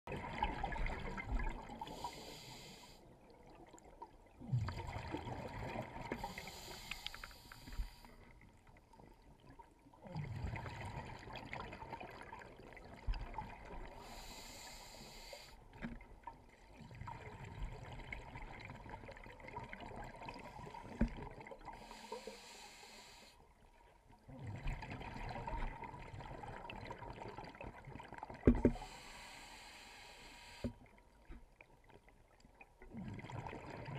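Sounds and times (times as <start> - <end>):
low underwater bubbling: 0.1 - 2.2, 3.2 - 6.8, 24.2 - 29.0, 32.0 - 33.9
regulator hiss on inhale: 1.8 - 3.1, 6.1 - 8.3, 14.0 - 15.6, 21.8 - 23.4, 28.7 - 30.8.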